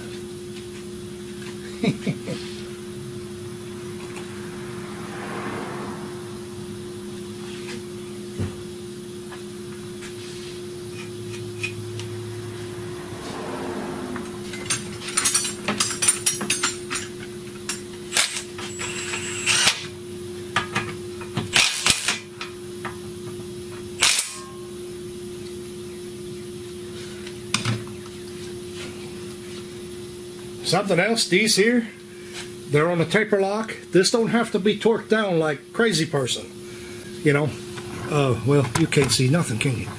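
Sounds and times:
steady hum: 0.0s - 39.9s
metal tools clinking and clanking: 14.5s - 19.4s.

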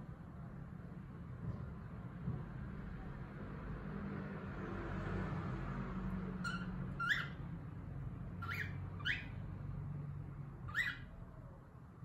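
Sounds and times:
cockatiel chirping: 6.4s - 7.4s, 8.4s - 9.4s, 10.6s - 11.1s.

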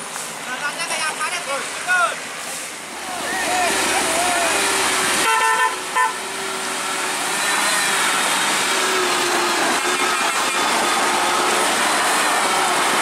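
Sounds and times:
truck diesel engine droning: 2.8s - 13.0s.

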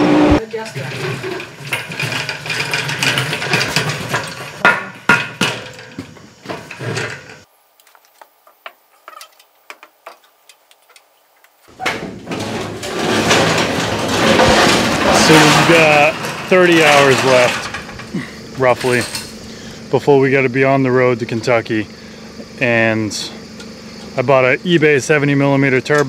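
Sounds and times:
tools knocking and clanking: 0.6s - 7.4s, 11.7s - 19.4s.

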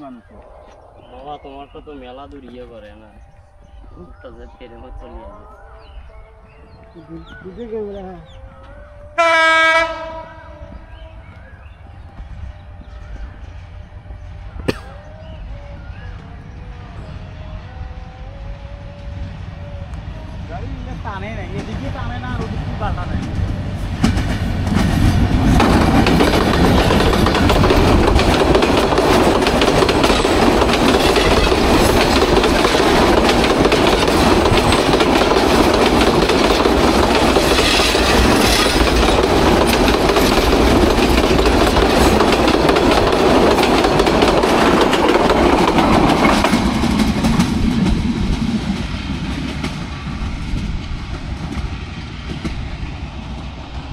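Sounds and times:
train passing at speed: 0.0s - 53.9s
wheels clattering over rail joints: 24.0s - 49.8s.

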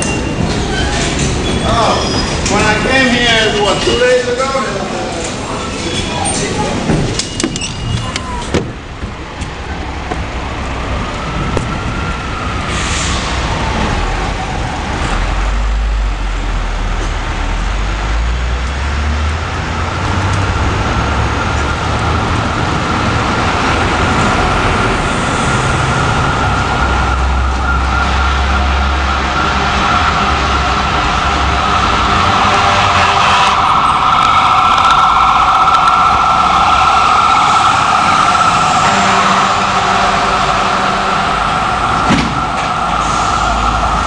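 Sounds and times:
low traffic rumble: 0.0s - 44.0s
siren wailing: 10.9s - 15.8s, 19.6s - 44.0s.

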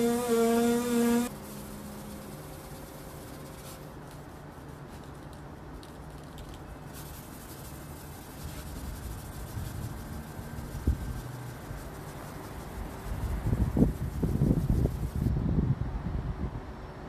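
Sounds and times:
sandpaper rasping on filler: 0.0s - 5.4s, 6.9s - 15.3s.

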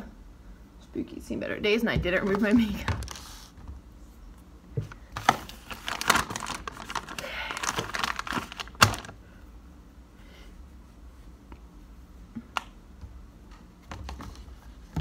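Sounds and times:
plastic packaging crinkling: 5.2s - 9.2s.

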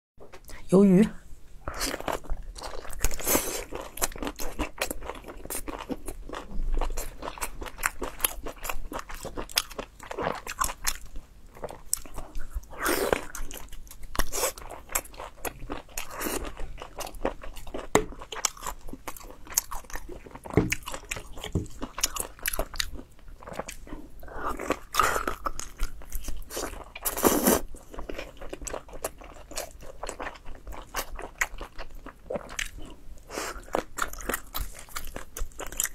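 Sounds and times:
biting and chewing: 1.7s - 23.9s.

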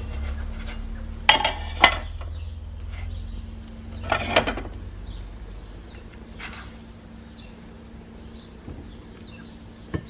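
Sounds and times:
plastic spatula scraping a pan: 0.0s - 2.1s
low steady hum: 0.0s - 10.0s.

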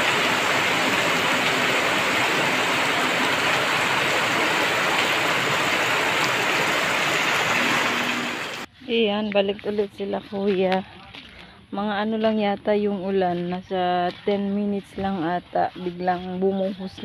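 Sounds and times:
heavy rain hiss: 0.0s - 8.7s.

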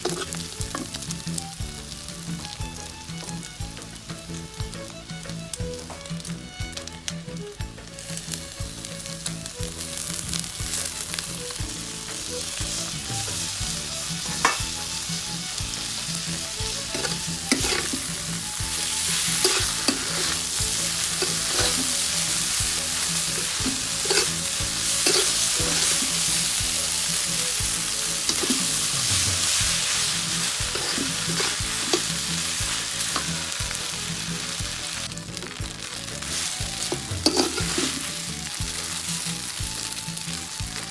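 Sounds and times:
metal spatula scraping pan: 0.0s - 1.2s, 12.0s - 34.6s, 36.2s - 38.6s
food sizzling in a wok: 0.0s - 40.9s.

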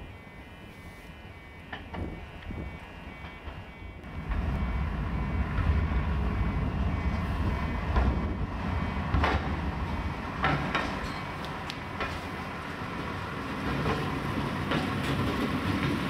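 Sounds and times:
diesel railbus engine rumble: 0.0s - 16.0s
wheels clicking over rail joints: 7.8s - 16.0s.

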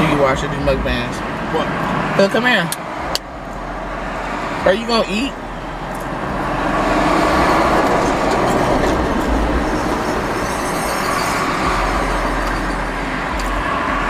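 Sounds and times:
heavy road traffic rumble: 0.0s - 14.0s
large truck passing: 5.3s - 14.0s.

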